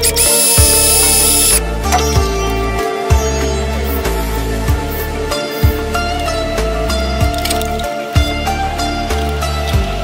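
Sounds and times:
cordless driver motor whining: 0.0s - 1.6s
background music: 0.0s - 10.0s.

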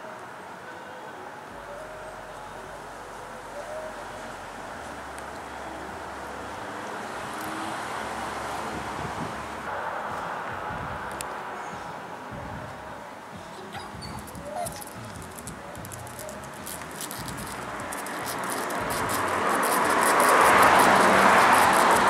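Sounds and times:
dog whimpering: 13.5s - 15.2s.

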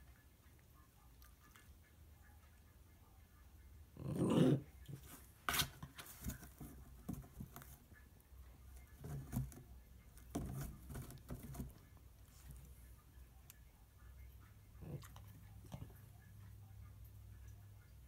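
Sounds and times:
cardboard box rustle: 5.0s - 7.8s.

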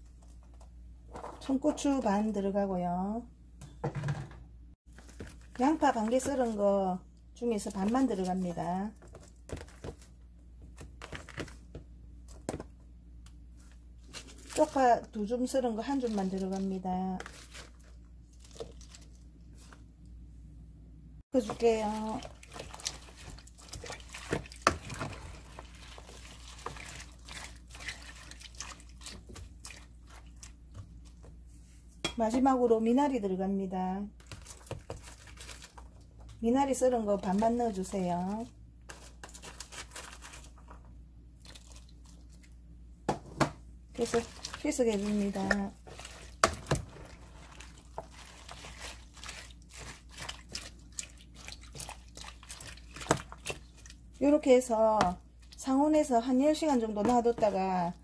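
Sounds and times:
vegetables crunching and squishing: 13.6s - 19.8s, 21.4s - 31.2s, 34.2s - 36.4s, 37.4s - 40.8s, 41.4s - 42.5s, 44.0s - 54.3s
spoon stirring liquid splashing: 21.4s - 31.3s, 44.0s - 55.6s.

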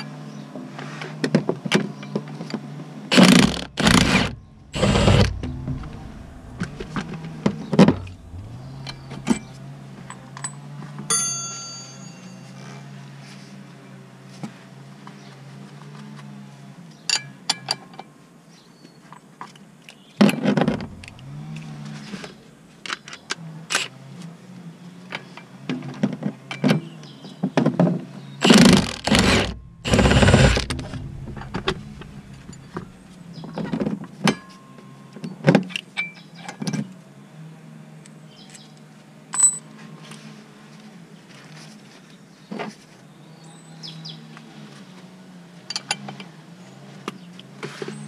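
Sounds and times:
steady low hum: 3.1s - 10.3s, 20.6s - 22.7s, 28.4s - 33.5s.

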